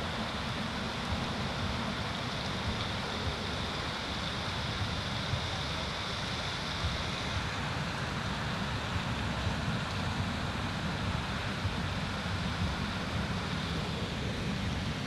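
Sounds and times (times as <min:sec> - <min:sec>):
steady hiss: 0:00.0 - 0:15.0
wind rumbling on microphone: 0:00.0 - 0:15.0.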